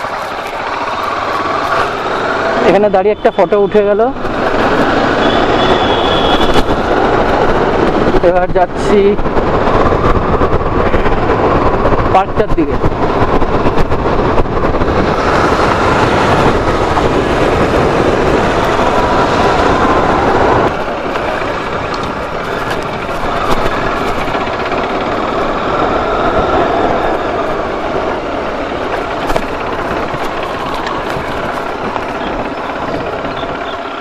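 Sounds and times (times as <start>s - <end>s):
motorcycle engine running: 0.0s - 3.3s, 12.9s - 34.0s
wind rushing over microphone: 0.0s - 34.0s.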